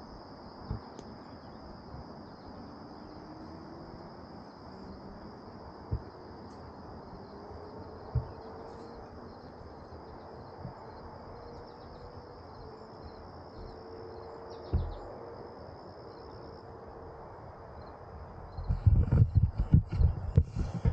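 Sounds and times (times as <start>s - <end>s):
high insect chorus: 0.0s - 20.9s
dull low thumps: 8.1s - 8.5s, 14.7s - 15.1s, 18.5s - 20.9s.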